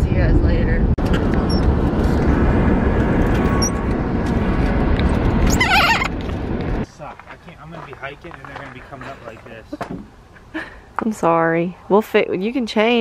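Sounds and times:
car road and wind noise: 0.0s - 7.0s.

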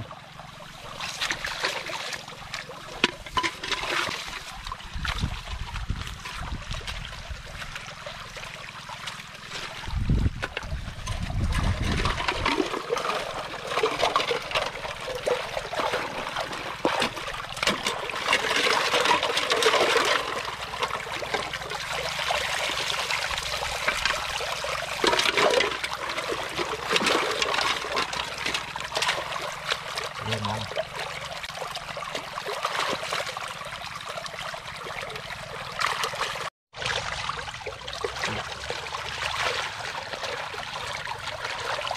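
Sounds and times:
water trickling and dripping: 0.0s - 41.9s.

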